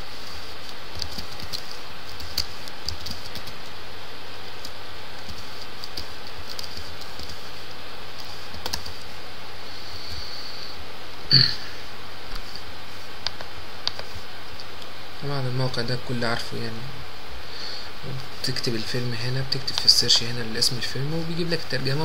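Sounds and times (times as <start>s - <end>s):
steady background hiss: 0.0s - 22.0s
keyboard keys clicking: 0.9s - 3.7s, 4.6s - 7.4s, 8.2s - 9.0s.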